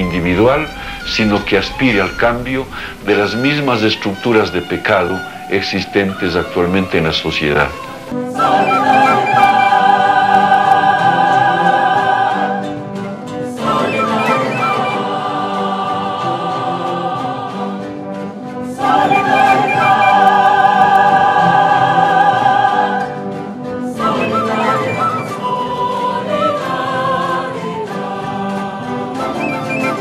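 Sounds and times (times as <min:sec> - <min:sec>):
mixed choir singing: 0:00.0 - 0:30.0.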